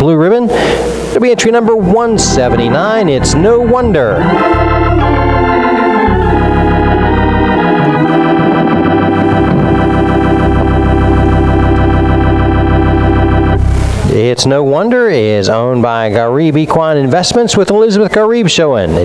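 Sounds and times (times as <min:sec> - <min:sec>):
organ music: 0:00.6 - 0:14.8.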